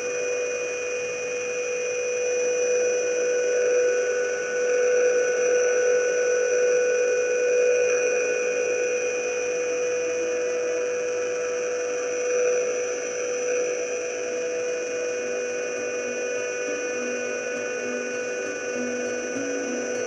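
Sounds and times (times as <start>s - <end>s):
sustained synth pad: 10.8s - 20.0s.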